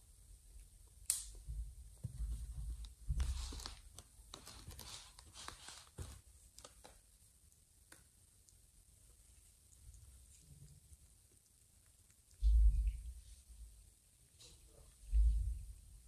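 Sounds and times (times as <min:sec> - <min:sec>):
kittens rustling on cushions: 0:02.0 - 0:07.0.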